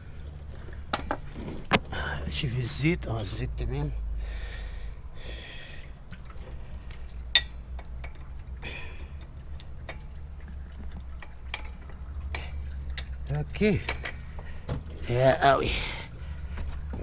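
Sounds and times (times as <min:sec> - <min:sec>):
person breathing: 0:04.1 - 0:06.0, 0:15.6 - 0:16.7
light ticks and taps of work: 0:05.8 - 0:08.4, 0:09.2 - 0:14.9.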